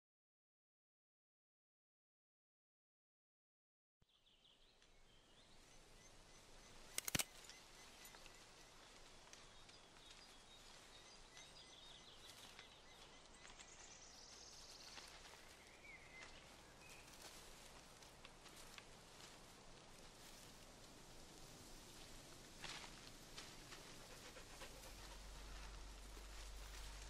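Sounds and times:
cluster of sharp clicks: 0:06.8 - 0:07.7.

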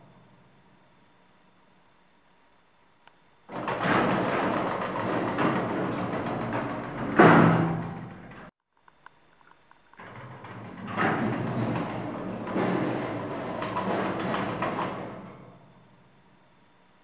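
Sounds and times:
doors banging together: 0:03.5 - 0:08.5, 0:10.0 - 0:15.9
elevator doors sliding shut: 0:03.5 - 0:08.5, 0:10.0 - 0:16.0.

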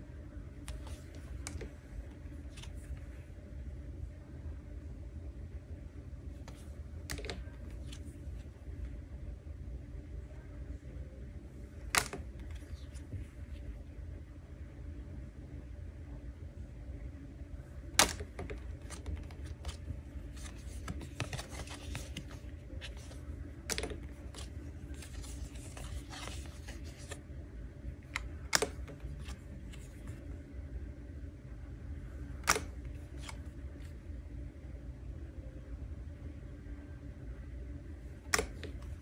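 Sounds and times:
steady low hum: 0:00.0 - 0:39.0
cards ticking and sliding: 0:00.7 - 0:03.2, 0:06.4 - 0:08.5, 0:11.8 - 0:13.2, 0:18.0 - 0:27.2, 0:28.1 - 0:30.2, 0:32.4 - 0:33.8, 0:38.2 - 0:39.0
card snaps: 0:11.9 - 0:12.6, 0:18.0 - 0:19.8, 0:20.4 - 0:27.2, 0:28.2 - 0:29.8, 0:32.4 - 0:33.4.

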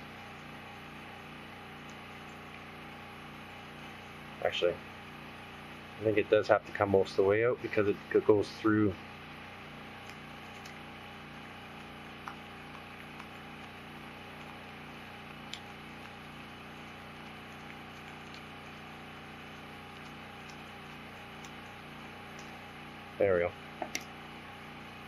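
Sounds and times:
low room hum: 0:00.0 - 0:25.0.

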